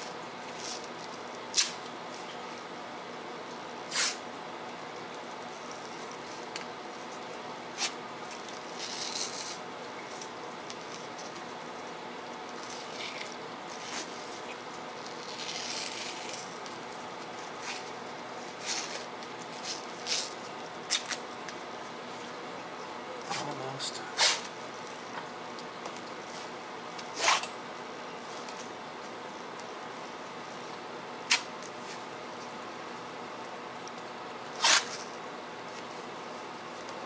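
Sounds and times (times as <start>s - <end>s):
room noise: 0.0s - 37.0s
tape ripping and rubbing: 0.4s - 1.9s, 3.9s - 4.2s, 5.4s - 11.5s, 12.4s - 21.2s, 24.2s - 24.6s, 26.3s - 27.6s, 31.2s - 32.0s, 34.5s - 35.2s.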